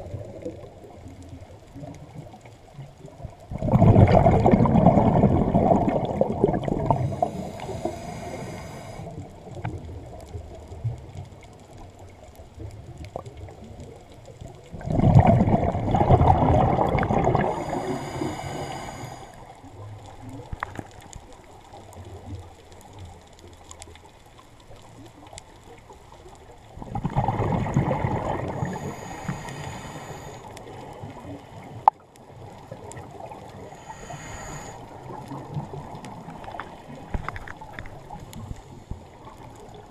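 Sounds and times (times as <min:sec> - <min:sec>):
exhaled bubbles rushing: 0:00.0 - 0:08.5, 0:14.5 - 0:18.3, 0:26.7 - 0:29.2, 0:34.9 - 0:39.9
regulator hiss with faint whine: 0:05.4 - 0:11.1, 0:16.9 - 0:20.5, 0:28.5 - 0:39.9.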